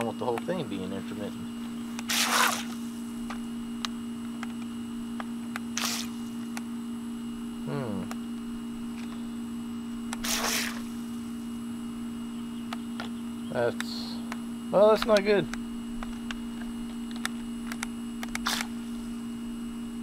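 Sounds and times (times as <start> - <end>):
steady low hum: 0.0 - 20.0
toy water jet splashing bursts: 10.2 - 10.9.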